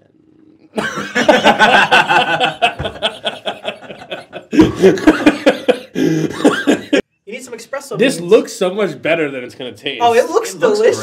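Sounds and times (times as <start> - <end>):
men laughing: 0.8 - 7.0.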